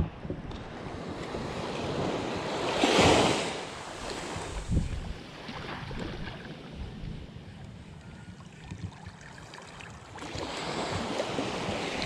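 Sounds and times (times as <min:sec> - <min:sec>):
small waves washing on sandy shore: 0:00.6 - 0:12.0.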